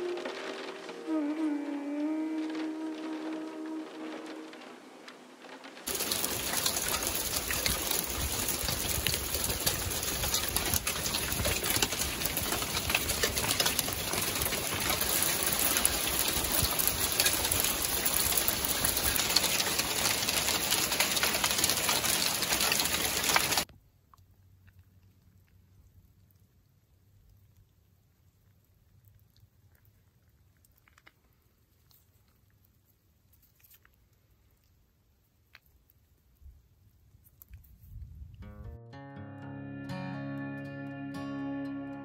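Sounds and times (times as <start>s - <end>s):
hail striking cars and roofs: 0.0s - 1.2s, 2.5s - 23.7s.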